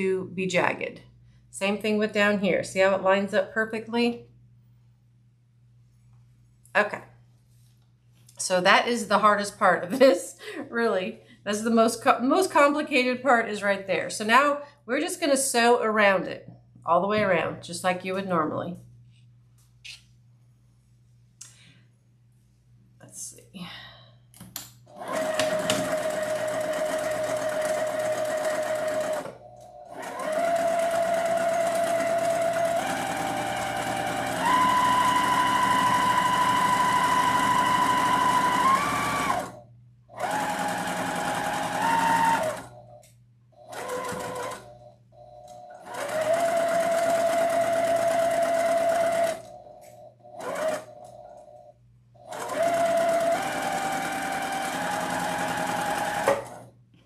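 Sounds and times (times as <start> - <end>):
sewing machine stitching: 24.9 - 42.8, 43.6 - 44.8, 45.8 - 49.6, 50.3 - 51.1, 52.2 - 56.7.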